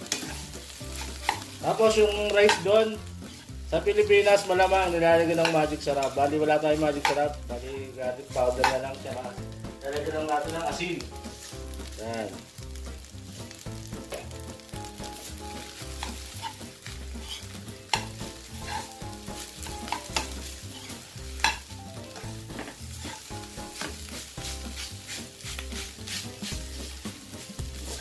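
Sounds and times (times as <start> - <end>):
spoon scraping and clacking on pan: 0.0 - 3.6, 4.3 - 7.4, 8.3 - 9.1, 15.0 - 28.0
rice sizzling in a wok: 0.0 - 28.0.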